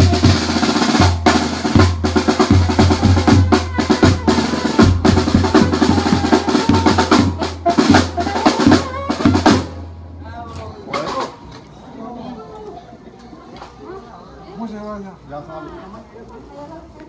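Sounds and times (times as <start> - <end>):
bass drum thumping: 0.0 - 9.8
fast snare drum strokes: 0.0 - 9.8
band music: 0.0 - 11.5.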